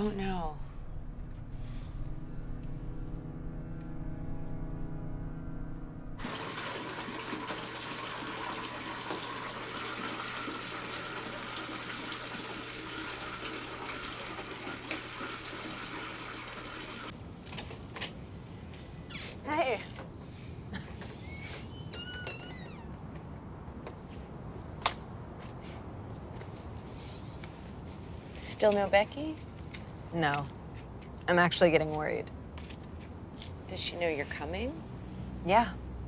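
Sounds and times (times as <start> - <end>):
steady low hum: 0.0 - 6.2
water running from tap: 6.2 - 17.1.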